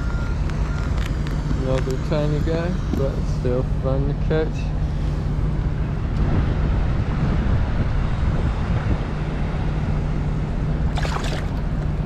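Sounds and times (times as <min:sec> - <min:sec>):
wind buffeting microphone: 0:05.3 - 0:12.0
water splash: 0:10.9 - 0:11.8
river flowing: 0:10.9 - 0:12.0.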